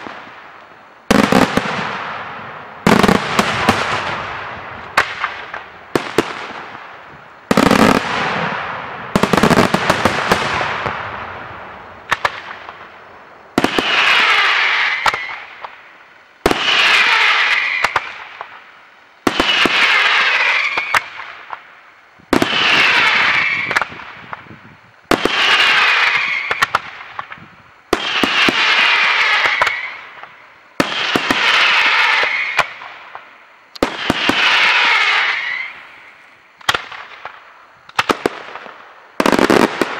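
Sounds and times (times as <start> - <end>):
firework bangs: 0.0 - 39.9
aerial firework shells bursting: 1.0 - 18.7.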